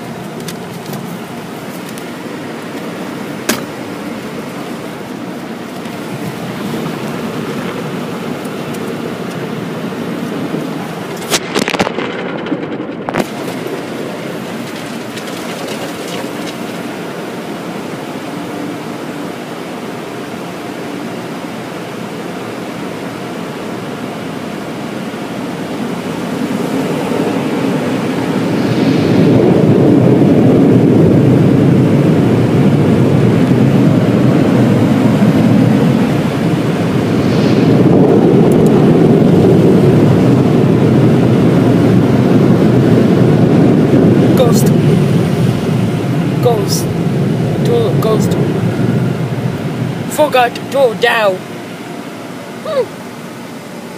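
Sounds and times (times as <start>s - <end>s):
air dryer blowers rushing: 24.1s - 50.1s.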